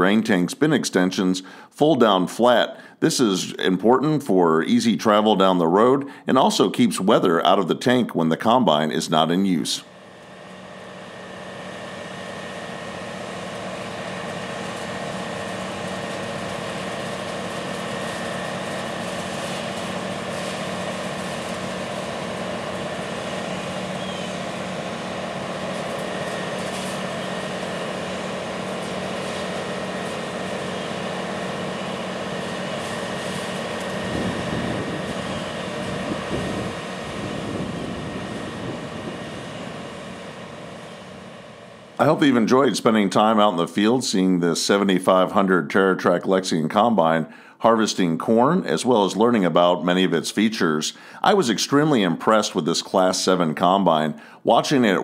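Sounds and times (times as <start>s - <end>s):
combine harvester engine drone: 0.0s - 55.0s.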